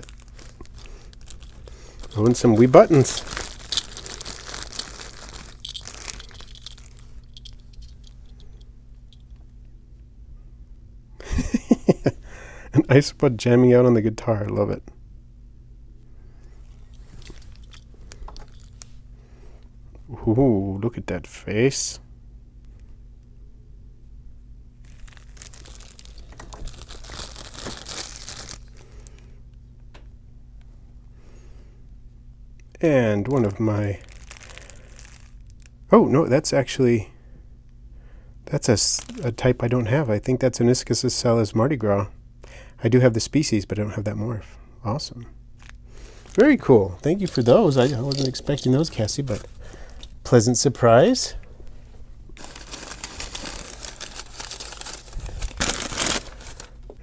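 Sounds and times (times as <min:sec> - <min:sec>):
paper rustling and crinkling: 0:00.0 - 0:07.9, 0:16.8 - 0:19.0, 0:24.8 - 0:29.2, 0:34.0 - 0:35.6, 0:45.6 - 0:50.2, 0:51.6 - 0:57.0
low steady hum: 0:00.0 - 0:57.0.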